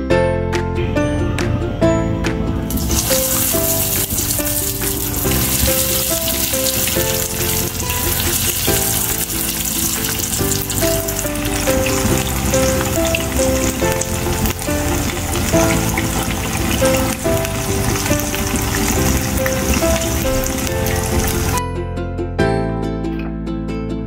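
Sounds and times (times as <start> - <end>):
background music melody: 0.0 - 24.0
croquettes sizzling in hot oil: 2.7 - 21.6.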